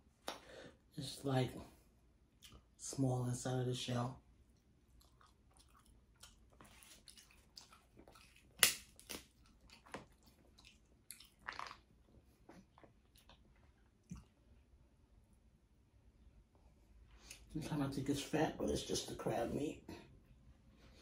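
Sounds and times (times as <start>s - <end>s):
chewing: 2.3s - 2.8s, 4.5s - 14.7s
crab shell cracking: 8.1s - 10.1s.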